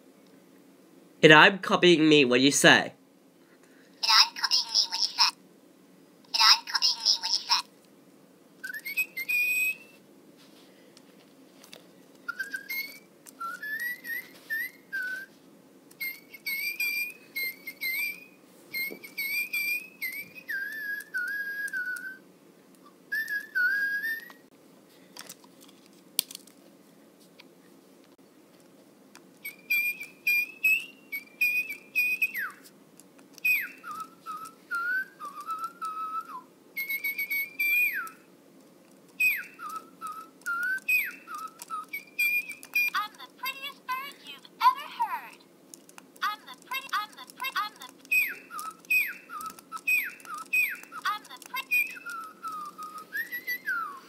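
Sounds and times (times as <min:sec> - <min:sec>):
toy bird electronic birdsong: 0:04.0 - 0:05.4, 0:06.4 - 0:07.7, 0:08.7 - 0:10.0, 0:12.3 - 0:15.1, 0:15.9 - 0:22.0, 0:23.2 - 0:24.4, 0:29.4 - 0:32.6, 0:33.4 - 0:38.3, 0:39.2 - 0:45.4, 0:46.2 - 0:53.9.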